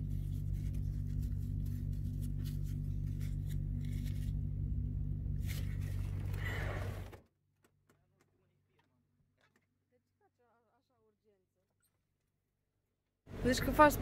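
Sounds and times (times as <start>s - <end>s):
lorry engine drone: 0.0s - 7.2s, 13.3s - 14.0s.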